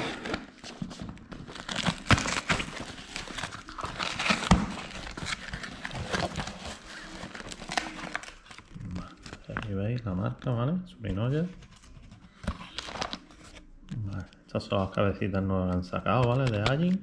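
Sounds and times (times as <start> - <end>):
packing tape tearing: 0.0 - 9.1.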